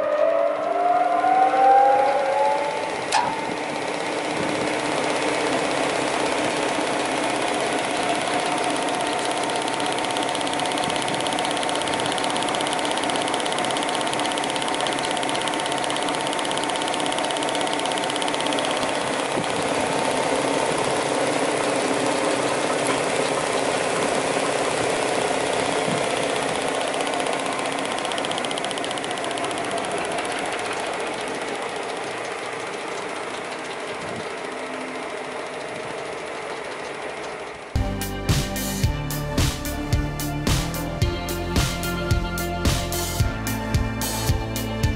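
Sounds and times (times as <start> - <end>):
sander motor whirring: 0.0 - 38.0.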